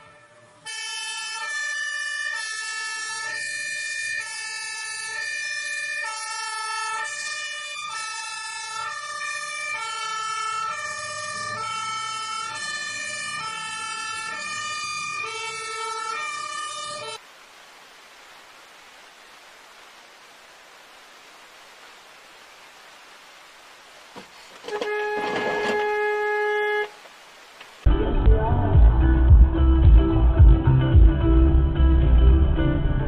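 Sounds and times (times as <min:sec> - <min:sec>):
two-tone siren: 0:00.0 - 0:17.2, 0:24.6 - 0:27.0
steady hiss: 0:17.2 - 0:25.2.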